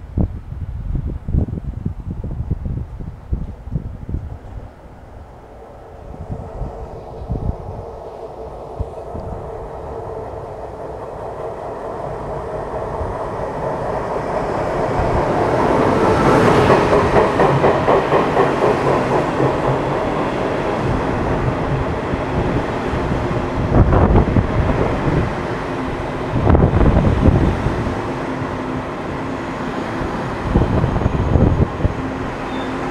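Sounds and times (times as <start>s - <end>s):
train rumble: 0.0s - 32.9s
train wheels clattering over rail joints: 14.9s - 22.6s.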